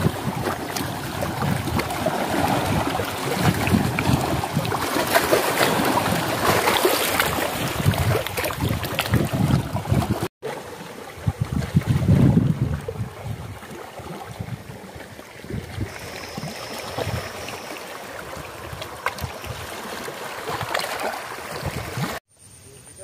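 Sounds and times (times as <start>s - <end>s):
wind buffeting microphone: 0.0s - 10.3s, 11.1s - 17.5s
lake waves lapping on rocks: 0.0s - 22.2s.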